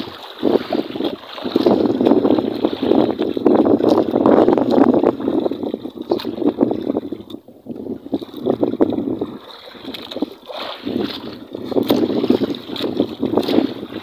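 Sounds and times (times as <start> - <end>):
water slapping against boat hull: 0.0 - 14.0
wind buffeting microphone: 0.0 - 14.0.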